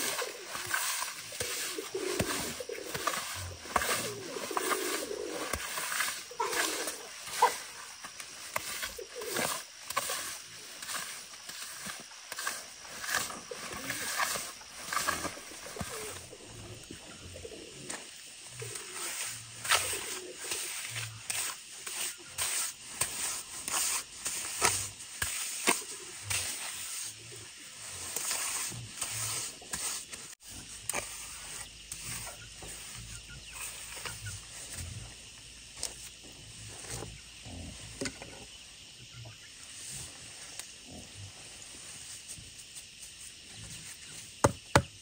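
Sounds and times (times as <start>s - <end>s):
trowel scraping wet cement: 0.0s - 16.9s, 18.6s - 27.1s, 28.1s - 34.3s.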